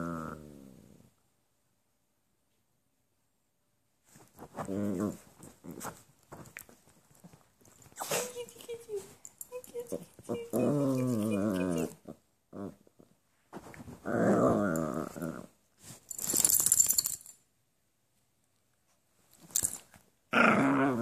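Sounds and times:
dog growling: 0.0s - 1.1s, 9.9s - 13.1s, 14.0s - 15.6s, 20.3s - 21.0s
short hissing noise: 8.0s - 8.4s.

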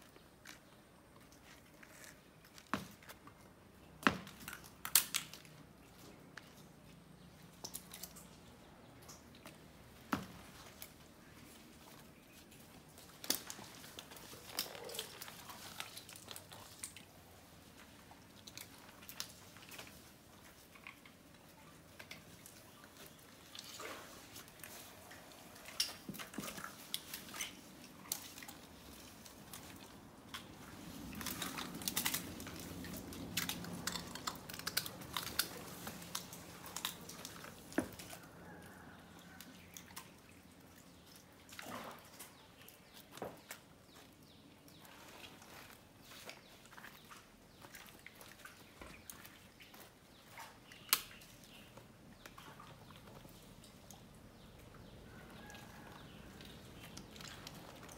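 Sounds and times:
snail shells cracking and crunching: 4.4s - 5.6s, 31.1s - 37.7s.

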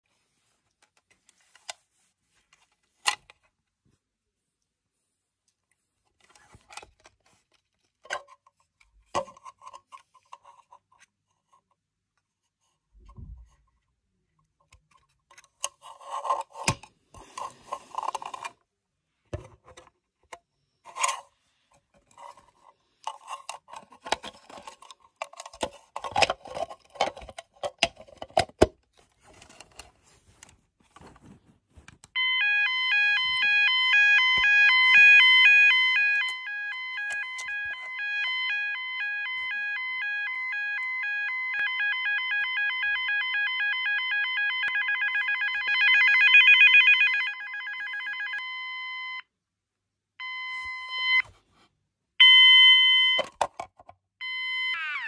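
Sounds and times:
multi-tone fire alarm: 32.2s - 49.3s, 50.2s - 51.2s, 52.2s - 53.3s, 54.2s - 55.0s.

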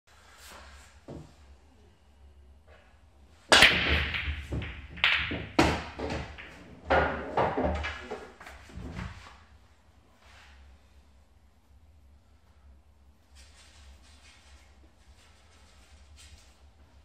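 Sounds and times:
cue ball cracking into rack: 3.5s - 8.4s
pool balls clacking together: 3.5s - 9.2s.

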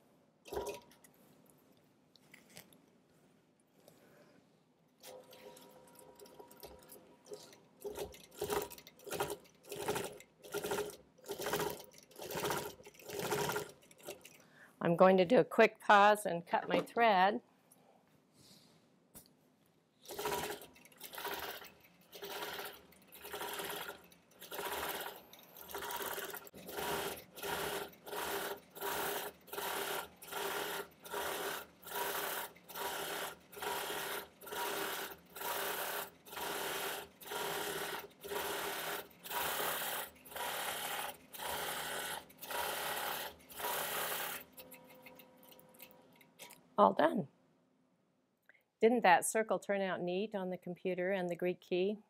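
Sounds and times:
quilting machine stitching: 0.5s - 0.9s, 5.0s - 14.4s, 20.0s - 45.9s.

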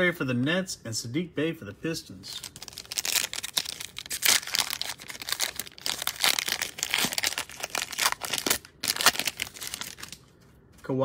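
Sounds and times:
foil wrapper crinkling and tearing: 2.4s - 10.2s.

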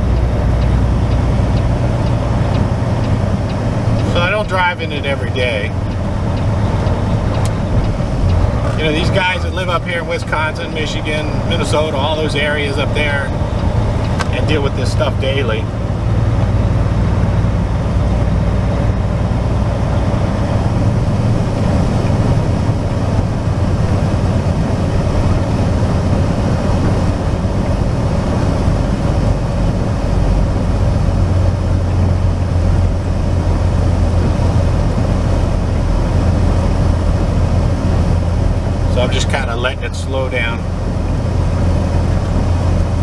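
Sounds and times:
truck engine hum in cab: 0.0s - 43.0s
tyre and road noise: 0.0s - 43.0s.

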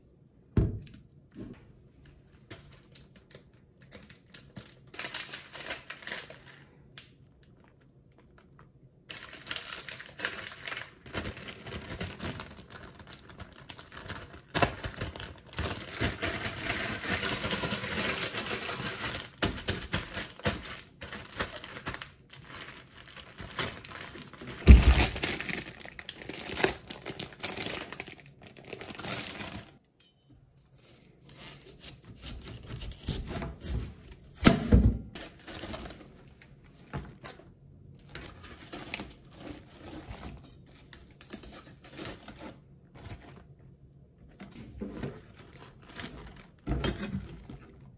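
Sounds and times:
plastic bag crinkling: 2.6s - 6.8s, 8.2s - 29.8s, 44.9s - 47.9s.

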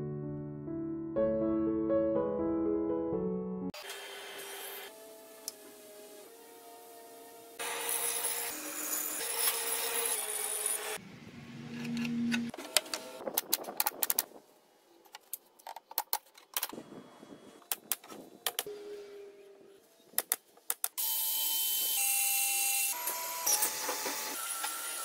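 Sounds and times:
band saw cutting plywood: 3.8s - 11.0s.

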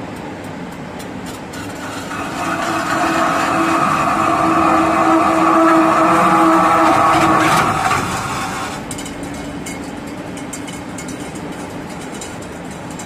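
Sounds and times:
machine hum with light clicks: 0.0s - 13.0s
spinning machine whine: 1.6s - 9.0s.

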